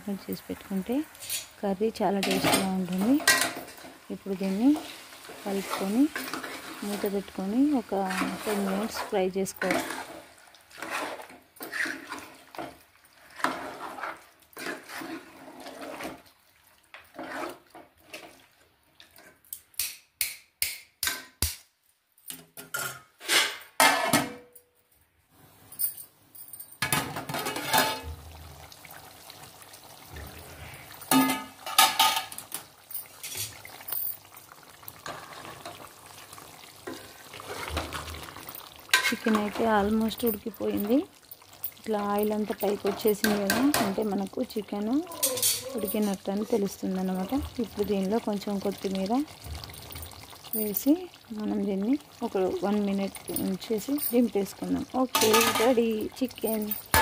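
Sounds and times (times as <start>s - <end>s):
metal spoon scraping a pot: 4.6s - 7.2s, 7.8s - 16.2s, 17.0s - 18.3s, 22.8s - 24.1s, 38.9s - 41.0s.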